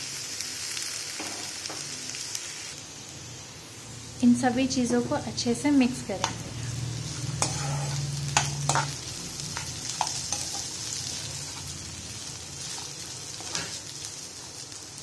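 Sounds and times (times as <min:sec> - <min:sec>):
vegetables sizzling in hot oil: 0:00.0 - 0:15.0
metal spoon scraping a pan: 0:06.2 - 0:11.8, 0:12.6 - 0:13.8.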